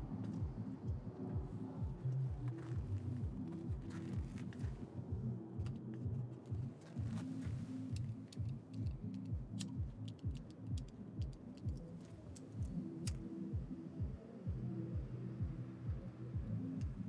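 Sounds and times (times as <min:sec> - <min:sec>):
low sustained bass notes: 0:00.0 - 0:17.0
steady low beat: 0:00.0 - 0:17.0
light clicking ticks: 0:07.9 - 0:13.3.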